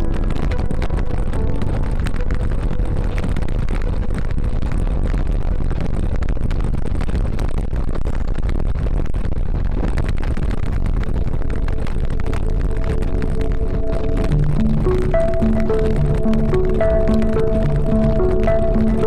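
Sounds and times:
bike tyre rumble on concrete: 0:00.0 - 0:15.2
wind rush on microphone: 0:00.0 - 0:19.0.

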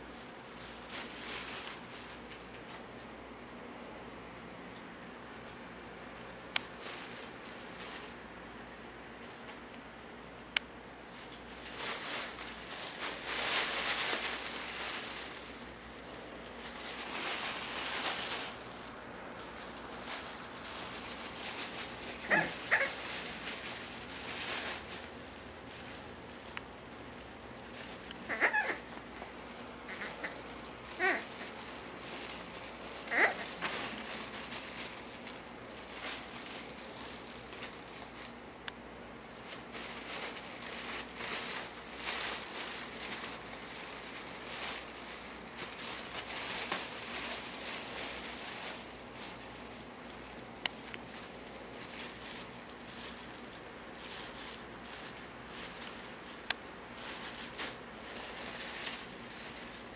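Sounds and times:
hissy rustling noise: 0:10.8 - 0:38.4
puppies yipping: 0:22.2 - 0:23.0.

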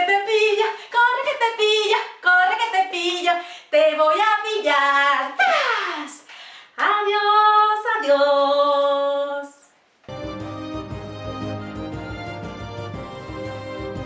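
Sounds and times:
woman singing: 0:00.0 - 0:09.7.

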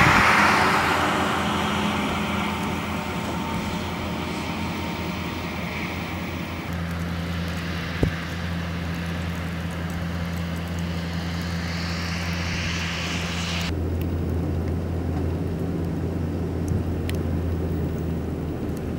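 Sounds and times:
tyres rushing on slush: 0:00.0 - 0:12.1
low engine drone: 0:00.0 - 0:18.9.

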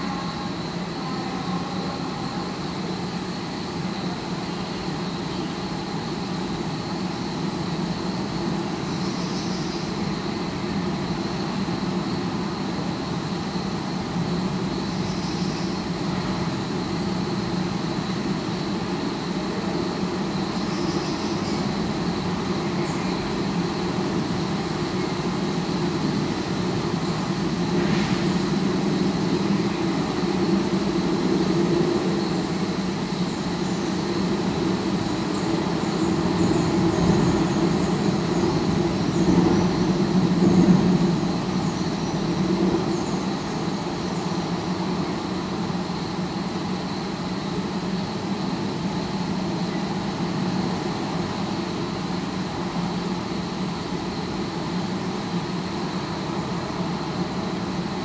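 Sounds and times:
city traffic rumble: 0:07.0 - 0:58.0.

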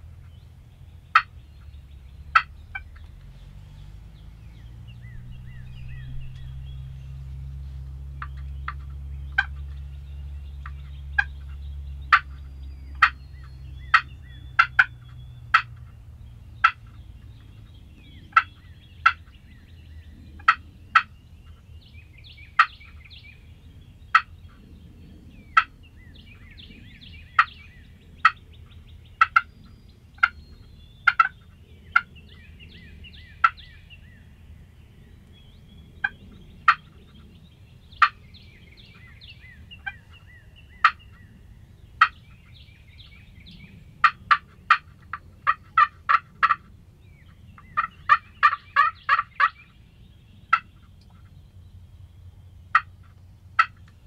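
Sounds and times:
turkeys clucking: 0:01.1 - 0:15.9, 0:16.6 - 0:19.4, 0:20.4 - 0:21.1, 0:22.5 - 0:23.0, 0:24.1 - 0:24.3, 0:27.3 - 0:29.5, 0:30.2 - 0:34.0, 0:36.0 - 0:37.3, 0:37.9 - 0:43.2, 0:44.0 - 0:46.7, 0:47.6 - 0:49.7, 0:50.5 - 0:51.3, 0:52.7 - 0:54.0
rapid turkey notes: 0:04.3 - 0:10.0, 0:44.0 - 0:46.7, 0:47.8 - 0:49.6.

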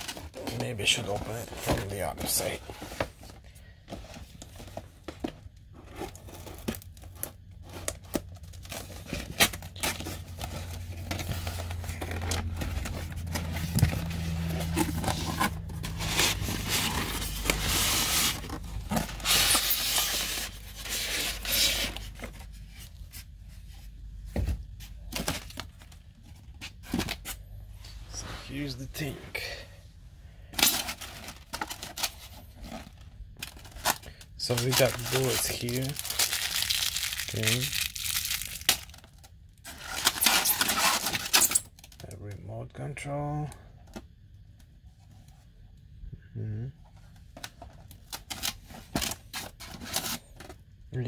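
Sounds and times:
cardboard tearing and scraping: 0:05.8 - 0:22.8, 0:30.6 - 0:39.0, 0:39.6 - 0:41.8.

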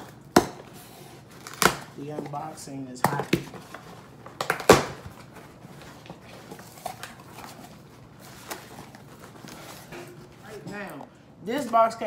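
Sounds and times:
cardboard rustling and handling: 0:00.0 - 0:10.8.

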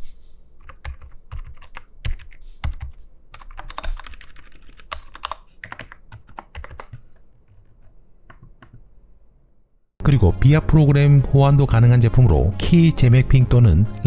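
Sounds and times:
mechanical keyboard typing: 0:00.6 - 0:07.6.

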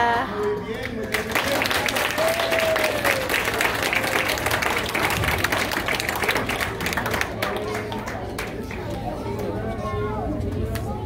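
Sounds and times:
audience applauding: 0:00.7 - 0:09.0.

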